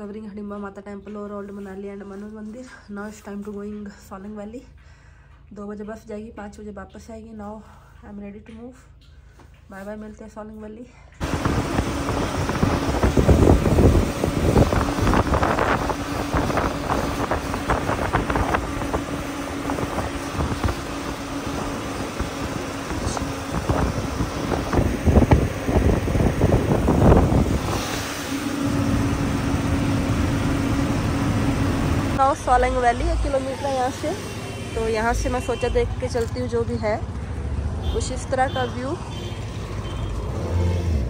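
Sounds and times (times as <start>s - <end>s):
wind buffeting microphone: 11.2s - 32.2s
vehicle engine humming: 11.2s - 41.0s.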